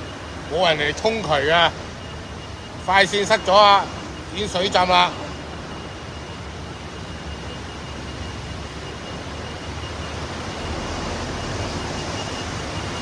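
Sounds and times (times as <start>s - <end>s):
faint high whine: 0.0s - 13.0s
tyres rushing through water: 0.0s - 13.0s.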